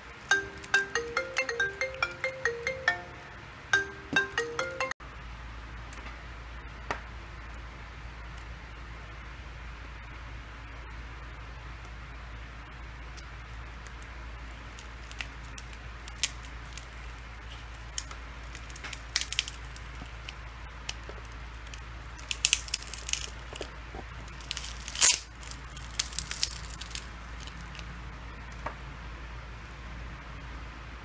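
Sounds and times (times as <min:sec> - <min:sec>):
plastic parts clicking and crackling: 0:14.0 - 0:27.9.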